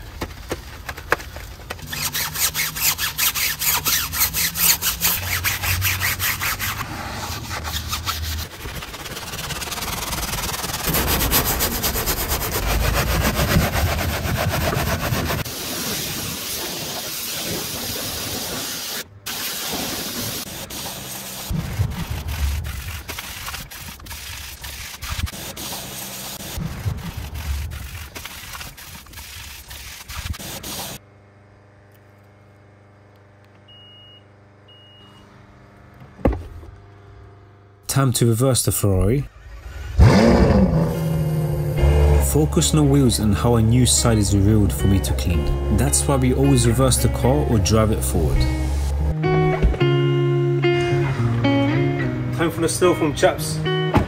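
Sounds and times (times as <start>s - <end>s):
brushes scrubbing a wheel: 1.8s - 31.0s.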